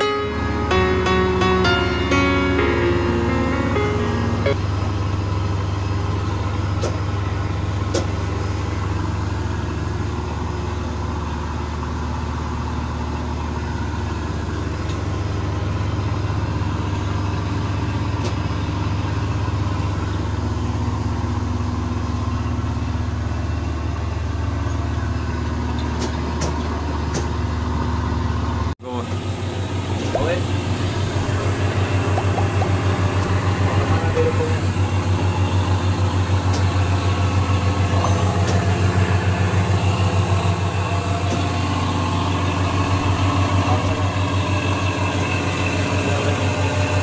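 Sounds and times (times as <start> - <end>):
diesel engine drone: 0.0 - 47.0.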